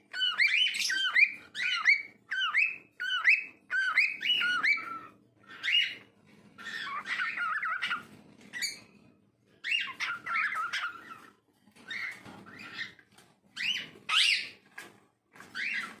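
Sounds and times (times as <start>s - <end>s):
cockatiel whistling: 0.1s - 8.8s, 9.6s - 11.3s, 13.6s - 14.6s.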